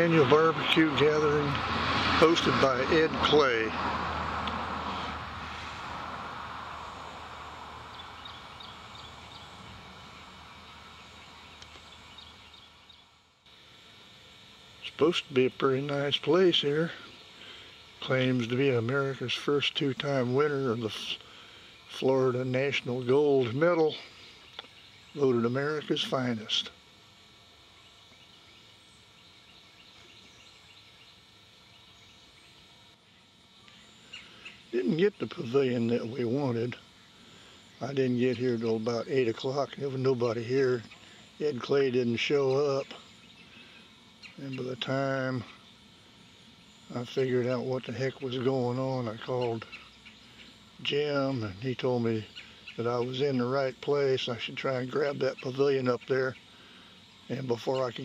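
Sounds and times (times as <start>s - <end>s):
vehicle passing on road: 0.0s - 10.9s
high insect drone: 0.0s - 58.0s.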